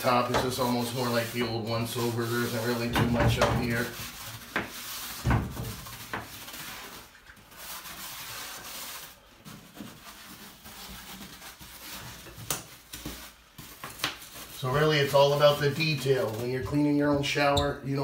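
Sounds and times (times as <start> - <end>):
brush scrubbing tile grout: 0.0 - 17.5.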